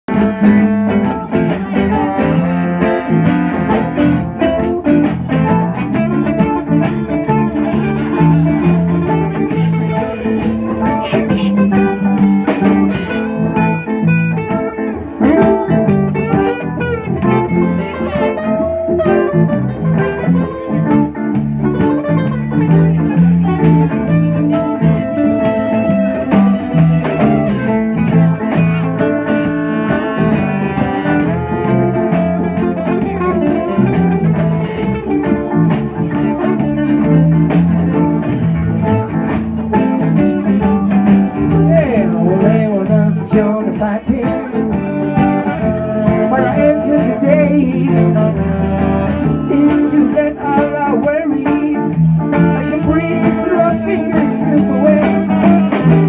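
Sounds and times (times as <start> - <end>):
trombone playing held notes: 0.1 - 20.2, 21.8 - 34.9, 44.5 - 50.1, 52.4 - 56.0
acoustic guitars strumming: 0.1 - 56.0.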